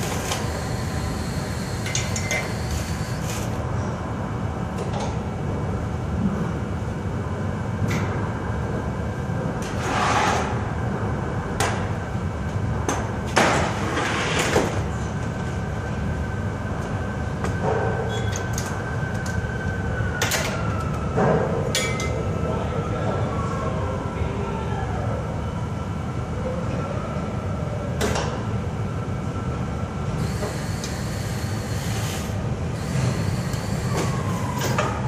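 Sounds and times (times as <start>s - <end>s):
thin steady whine: 0.0s - 4.0s, 29.2s - 35.0s
low machinery hum: 0.0s - 35.0s.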